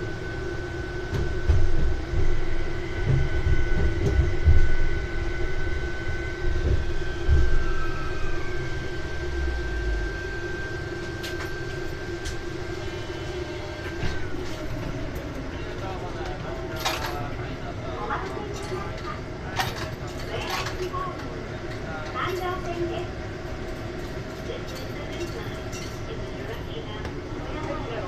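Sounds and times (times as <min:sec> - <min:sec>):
electrical motor whine: 0:00.0 - 0:28.0
tram wheels rumbling over rail joints: 0:01.2 - 0:05.1.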